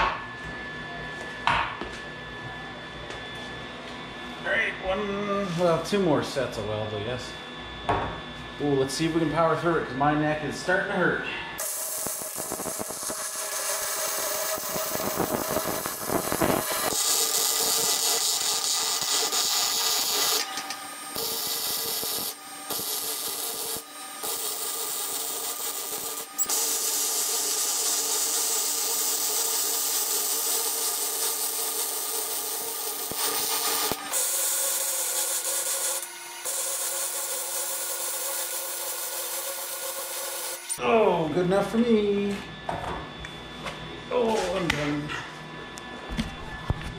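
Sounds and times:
welder arc crackling: 11.6s - 40.8s.

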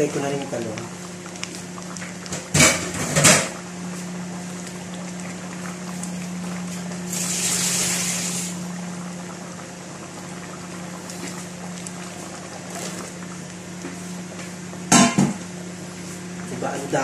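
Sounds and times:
stew boiling in pot: 0.0s - 17.0s
hiss: 7.1s - 8.6s.

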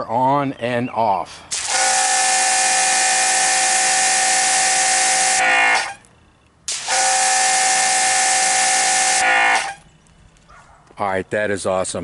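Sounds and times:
water jet hissing: 1.5s - 6.0s, 6.7s - 9.8s
pressure washer motor whine: 1.6s - 6.0s, 6.7s - 9.8s.

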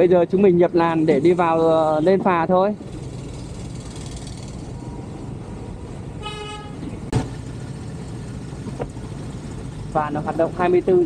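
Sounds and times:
road traffic noise: 0.0s - 11.0s
vehicle horn toot: 6.2s - 6.9s.

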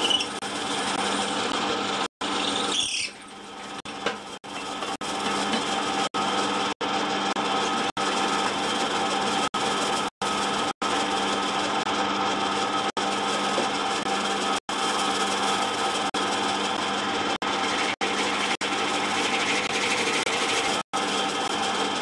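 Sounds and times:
pillar drill cutting metal tube: 14.0s - 22.0s.

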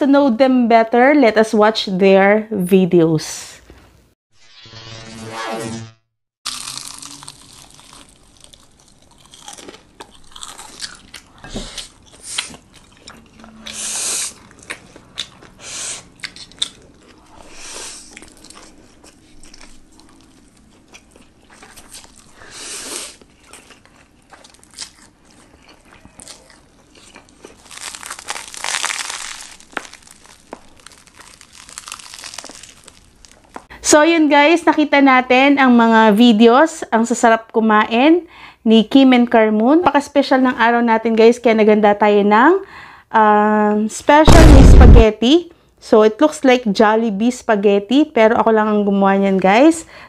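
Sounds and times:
crunchy chewing: 6.5s - 33.7s.

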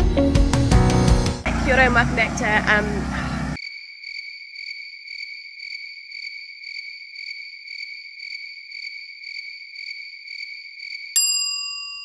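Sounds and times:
crickets chirping: 3.3s - 11.2s.

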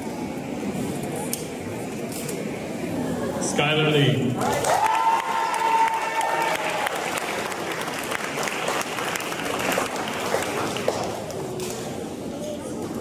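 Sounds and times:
high cheer: 4.4s - 8.7s
audience applauding: 4.4s - 11.6s.

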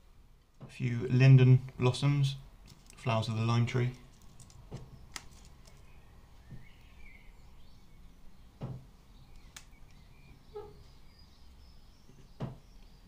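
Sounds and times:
bird chirps: 5.8s - 13.0s.

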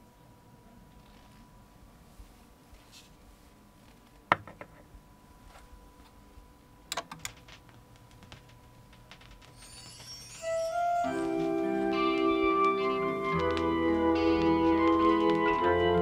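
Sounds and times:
faint hum: 0.0s - 16.0s
record ticks: 6.9s - 9.6s, 11.3s - 16.0s.

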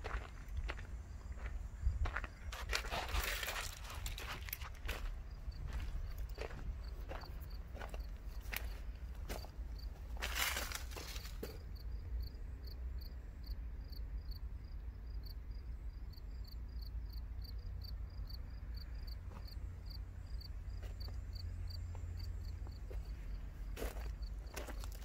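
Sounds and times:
insect chirping: 0.0s - 25.0s.

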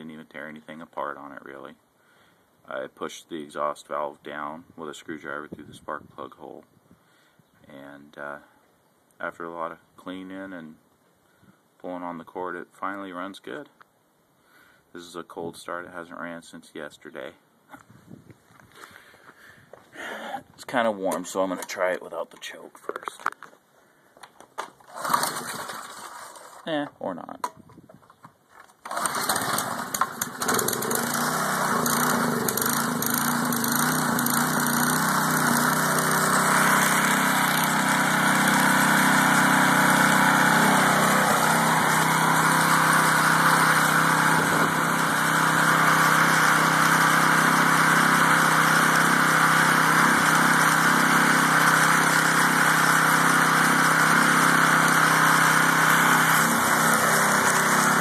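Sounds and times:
small engine starting and running: 24.8s - 26.7s, 28.7s - 58.0s.

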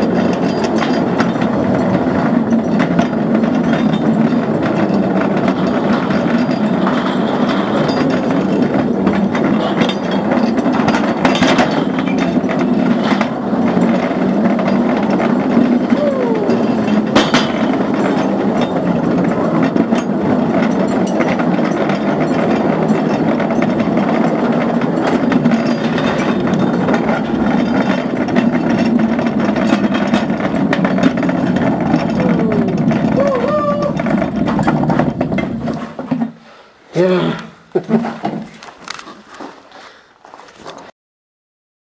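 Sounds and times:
cart wheels rattling on rails: 0.0s - 40.9s.

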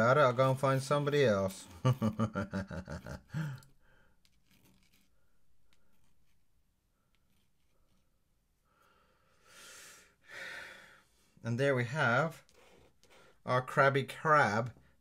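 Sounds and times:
person breathing: 3.3s - 4.2s, 8.6s - 11.4s
ink brush strokes on paper: 4.2s - 8.3s.

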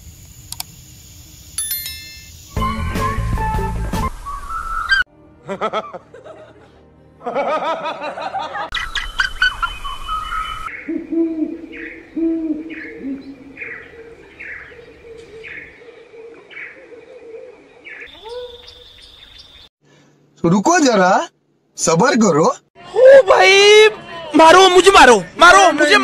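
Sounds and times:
wavering pitched bird calls: 4.4s - 5.1s, 8.7s - 19.7s
owl hooting: 8.8s - 19.2s.

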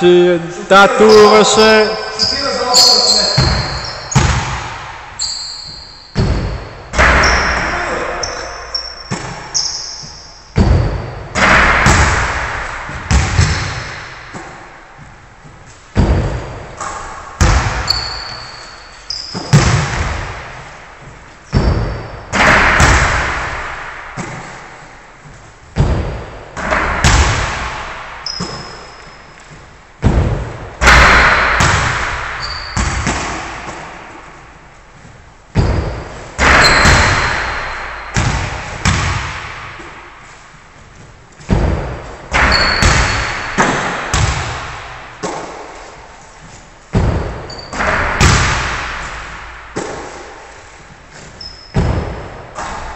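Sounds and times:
sneaker squeaks: 1.1s - 4.5s, 5.2s - 11.4s, 13.1s - 14.7s, 16.8s - 19.8s, 21.0s - 22.4s, 28.2s - 29.8s, 32.4s - 33.9s, 35.0s - 38.2s, 42.3s - 43.7s, 47.4s - 47.9s, 51.0s - 52.7s
basketballs striking the hoop: 1.6s - 34.5s, 35.4s - 40.6s, 41.3s - 46.1s, 46.9s - 52.9s
basketballs bouncing on wooden floor: 2.2s - 34.4s, 35.0s - 40.1s, 40.9s - 46.0s, 46.9s - 50.3s, 51.2s - 52.9s.

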